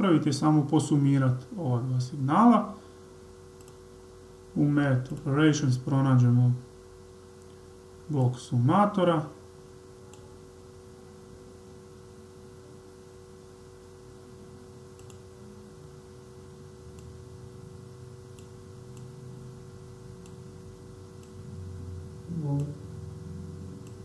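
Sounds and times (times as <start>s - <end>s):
low electrical hum: 0.0s - 24.0s
computer mouse clicks: 3.6s - 3.8s, 15.0s - 15.2s.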